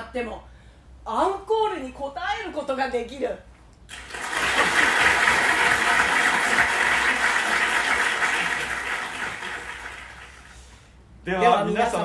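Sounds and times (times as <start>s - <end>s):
audience applauding: 3.9s - 10.6s.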